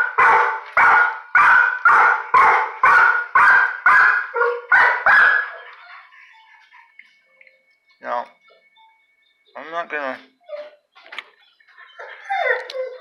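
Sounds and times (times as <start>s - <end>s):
dog barking: 0.0s - 5.7s.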